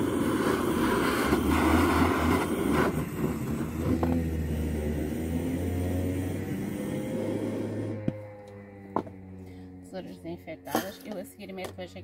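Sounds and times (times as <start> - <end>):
blowtorch flame hissing: 0.0 - 8.2
low hum: 0.0 - 12.0.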